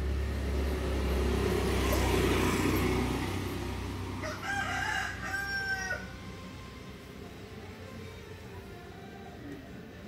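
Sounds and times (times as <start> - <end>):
motor vehicle passing by: 0.0 - 8.8.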